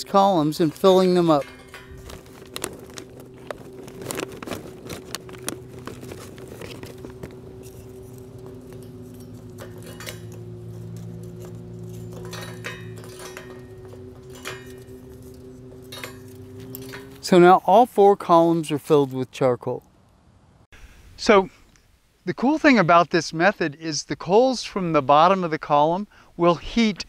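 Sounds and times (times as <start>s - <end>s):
steady low hum: 0.0s - 18.3s
charcoal briquettes clattering: 0.0s - 18.8s.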